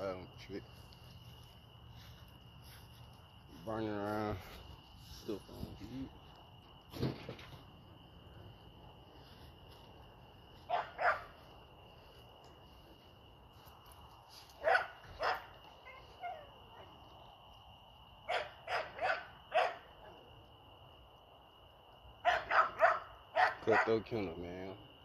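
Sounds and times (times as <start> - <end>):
dog barking: 10.7 - 11.4, 14.6 - 16.9, 18.2 - 20.1, 22.2 - 24.0.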